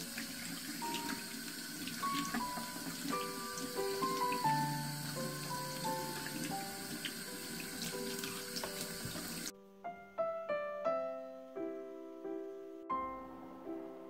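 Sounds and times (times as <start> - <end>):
gentle piano music: 0.0 - 14.0
tap running into steel sink: 8.1 - 9.4.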